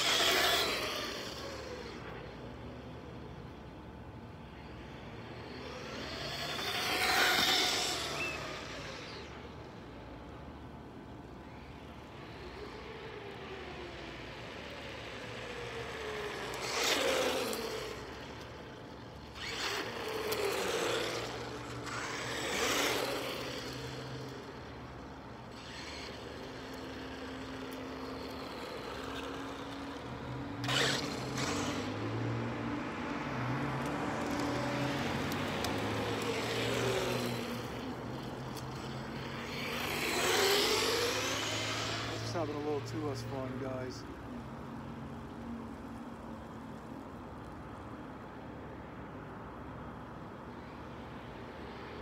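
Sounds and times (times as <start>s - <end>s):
toy car motor whine: 0.0s - 2.8s, 4.4s - 10.0s, 11.2s - 32.5s, 33.8s - 43.8s.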